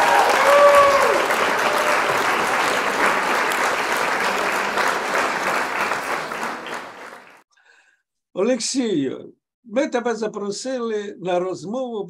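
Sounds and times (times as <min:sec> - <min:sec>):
applause: 0:00.0 - 0:07.4.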